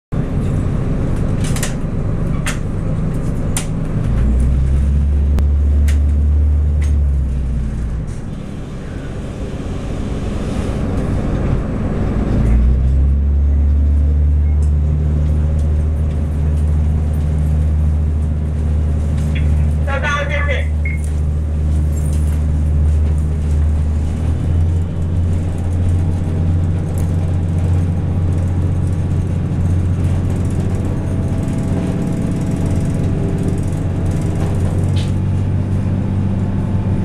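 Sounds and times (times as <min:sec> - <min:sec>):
train diesel engines droning: 0:00.2 - 0:37.0.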